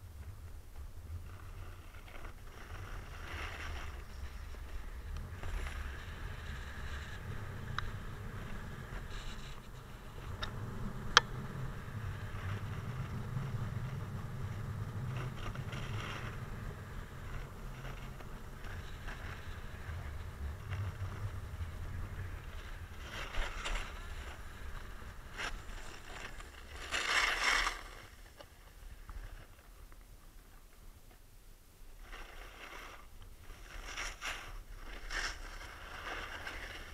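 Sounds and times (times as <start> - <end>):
snowboard rumbling over packed snow: 0.0 - 30.4, 31.8 - 36.9
board edge scraping snow: 0.2 - 30.7, 31.8 - 36.9.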